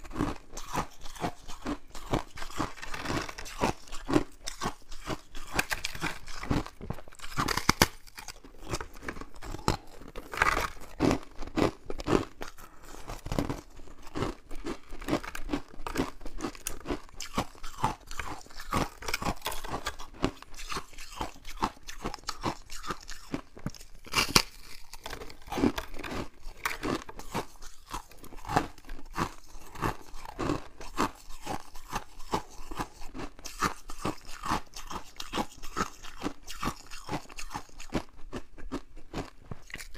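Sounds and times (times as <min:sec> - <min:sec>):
frost crunching and crackling: 0:00.0 - 0:38.0.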